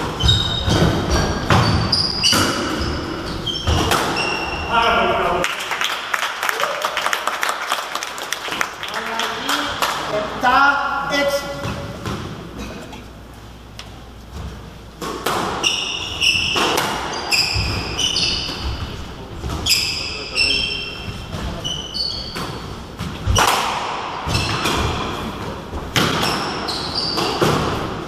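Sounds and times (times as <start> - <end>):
shoes squeaking on wooden floor: 0.0 - 4.7, 15.6 - 23.4, 26.2 - 27.8
squash ball cracking off walls: 22.4 - 25.2, 25.9 - 26.6.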